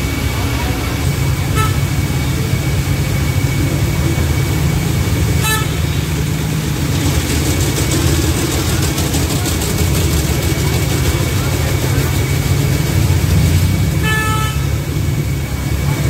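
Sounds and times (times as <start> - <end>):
road traffic rumble: 0.0 - 16.0
vehicle horn beep: 1.4 - 2.1, 5.4 - 6.1, 13.9 - 14.8.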